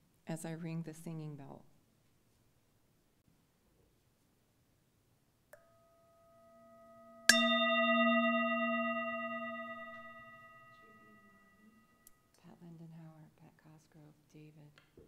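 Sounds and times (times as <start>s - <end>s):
singing bowl ringing: 5.6s - 12.1s.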